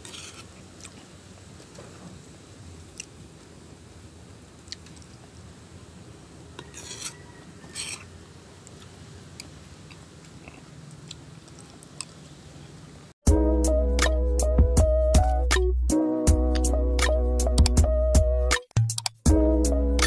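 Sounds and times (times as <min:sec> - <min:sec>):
spoon scraping plastic bowl: 0:00.0 - 0:00.6, 0:06.6 - 0:08.1
music: 0:13.2 - 0:20.0.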